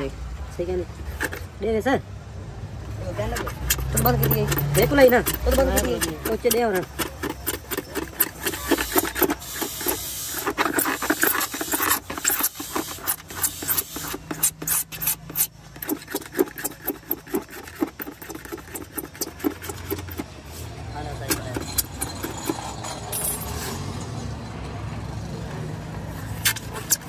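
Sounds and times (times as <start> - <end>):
blade scraping plastic: 1.0 - 1.5, 3.0 - 23.2, 26.1 - 27.0.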